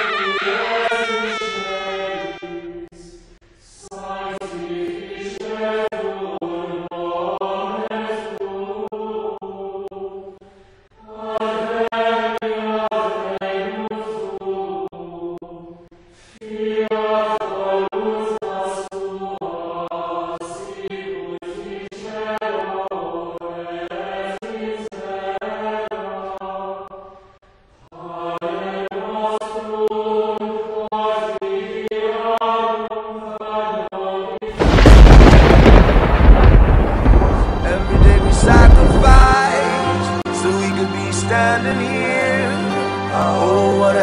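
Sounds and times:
choir-like chant singing: 0.0 - 44.0
loud low burst of noise: 34.6 - 39.4.

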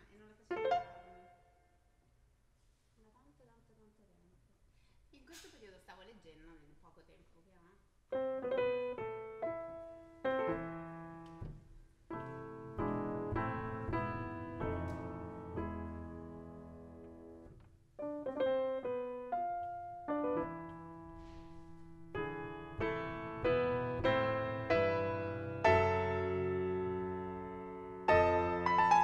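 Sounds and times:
grand piano playing: 0.4 - 1.6, 8.1 - 29.0.

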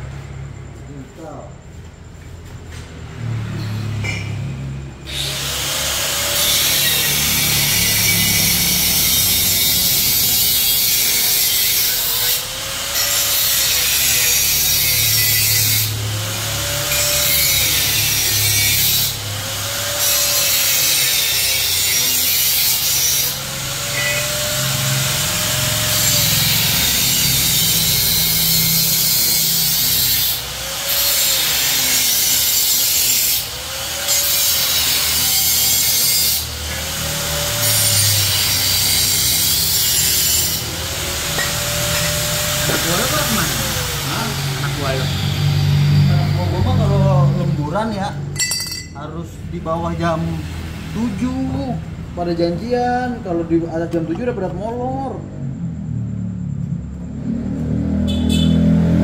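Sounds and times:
power tool cutting metal: 3.3 - 48.8.

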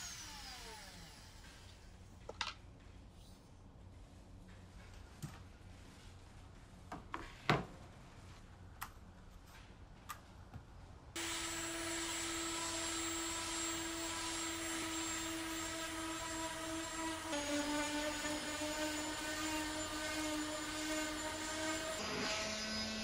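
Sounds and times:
orbital sander humming whine: 11.2 - 23.0.

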